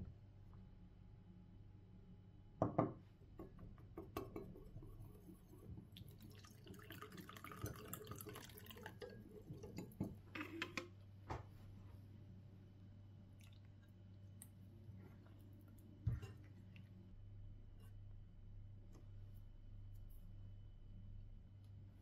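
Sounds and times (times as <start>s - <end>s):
water pouring into a bowl: 4.8s - 10.1s.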